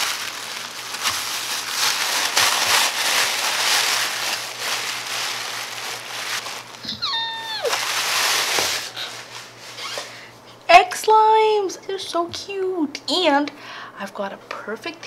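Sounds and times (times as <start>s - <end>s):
plastic bag crinkling: 0.0s - 10.2s
short falling squeal: 6.8s - 7.8s.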